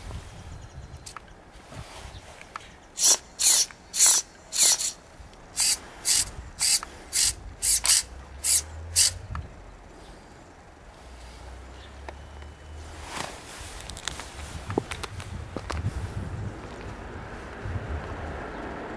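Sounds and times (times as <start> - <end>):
recoil pull-starter rasping: 3.0 - 9.5.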